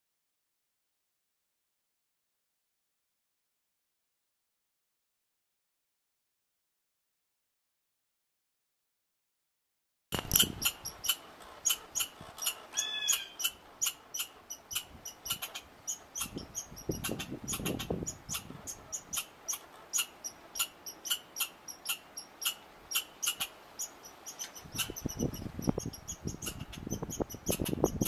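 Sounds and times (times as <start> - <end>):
squirrel chirp: 10.2 - 28.0
squirrel chucking: 10.2 - 28.0.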